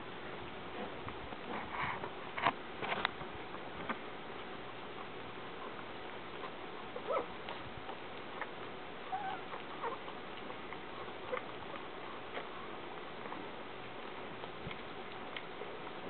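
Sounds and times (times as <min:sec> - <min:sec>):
puppies squeaking: 0:07.0 - 0:07.3, 0:09.0 - 0:11.8.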